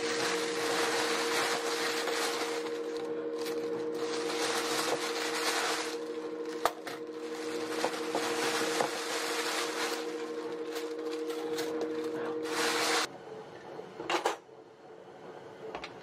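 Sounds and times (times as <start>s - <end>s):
plastic bag crinkling: 0.0s - 13.1s
steady low hum: 0.0s - 13.1s.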